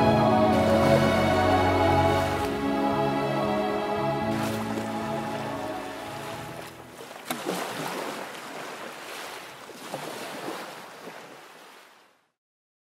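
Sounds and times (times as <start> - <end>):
closing music: 0.0 - 6.7
sea surf washing on shore: 0.0 - 12.2
sharp splash-like crack: 6.6 - 12.0.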